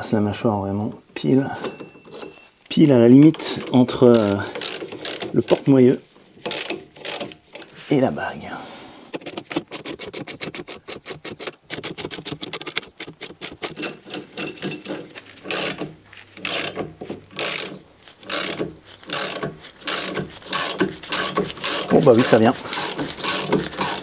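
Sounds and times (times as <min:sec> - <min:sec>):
ratchet clicking: 0:04.0 - 0:05.7, 0:06.4 - 0:07.4, 0:15.5 - 0:24.0.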